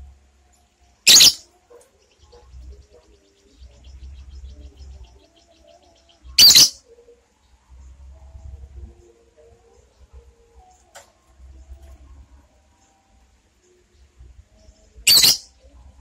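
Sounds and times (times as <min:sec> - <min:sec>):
soft rapid bird chatter: 0:00.8 - 0:11.0, 0:12.7 - 0:16.0
lovebird shrieking: 0:01.1 - 0:01.4, 0:06.4 - 0:06.8, 0:15.1 - 0:15.4.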